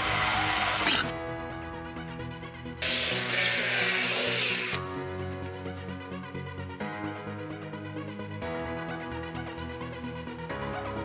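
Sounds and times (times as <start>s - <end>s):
cordless drill boring into wood: 0.0s - 1.1s, 2.8s - 4.8s
drill boring through metal lid: 0.0s - 1.1s, 2.8s - 4.8s
electronic background music: 0.0s - 11.0s.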